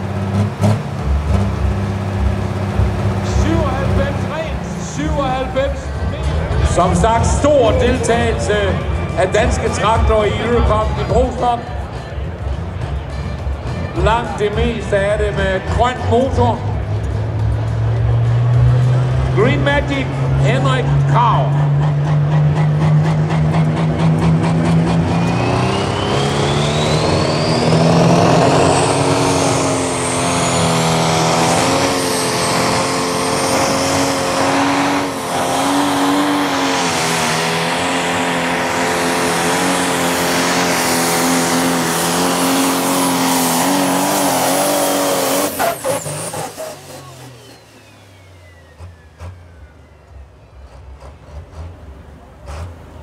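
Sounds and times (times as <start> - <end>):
diesel engine running under load: 0.0 - 53.0
high turbo whistle: 25.1 - 31.7.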